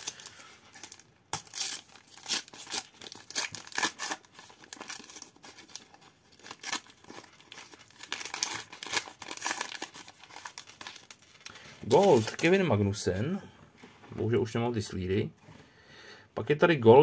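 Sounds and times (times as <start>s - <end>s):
wrapper tearing and crinkling: 0.0s - 12.6s.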